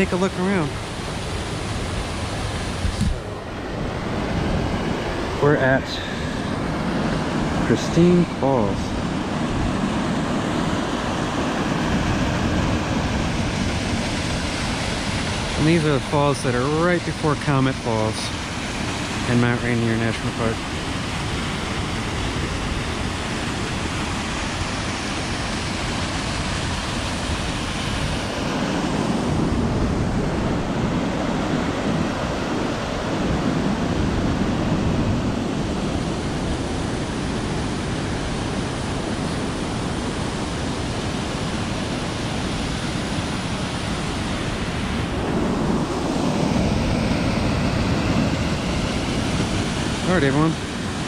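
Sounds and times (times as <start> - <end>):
waterfall rushing: 0.0 - 51.0.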